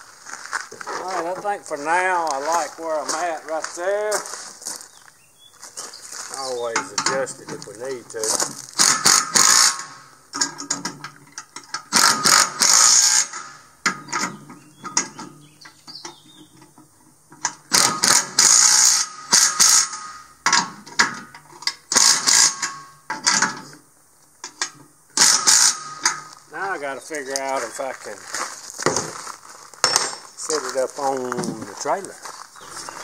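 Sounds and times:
impact driver rattling: 8.8 - 14.4, 17.5 - 21.1, 21.9 - 23.6, 25.2 - 26.3.

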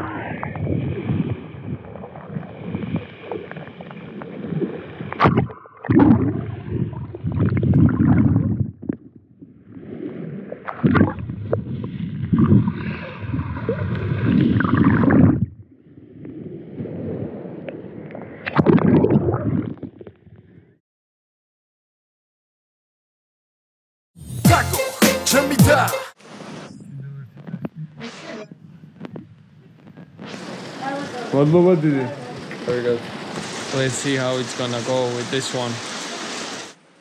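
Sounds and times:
muffled water sloshing and gurgling: 0.0 - 20.8.

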